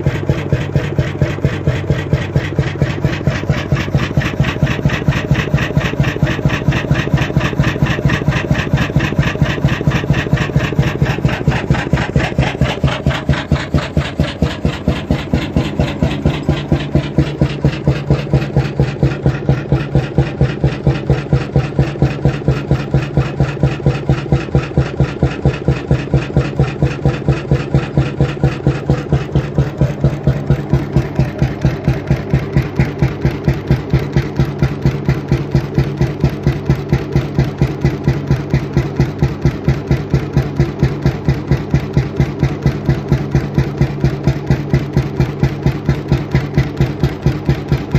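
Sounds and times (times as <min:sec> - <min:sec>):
oil engine running rhythmically: 0:00.0 - 0:47.9.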